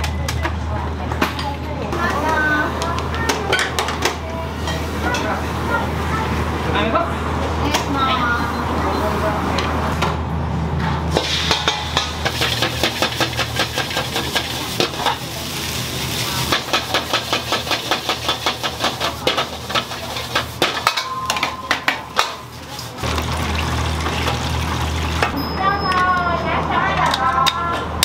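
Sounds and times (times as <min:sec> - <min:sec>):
food sizzling: 0:11.2 - 0:21.0, 0:22.4 - 0:25.4.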